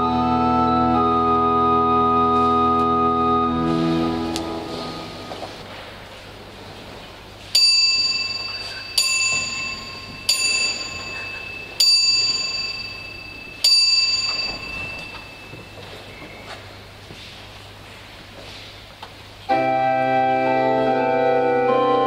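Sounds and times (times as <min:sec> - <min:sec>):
steady low hum: 0:00.0 - 0:22.0
small high-pitched bell ringing: 0:07.6 - 0:15.9.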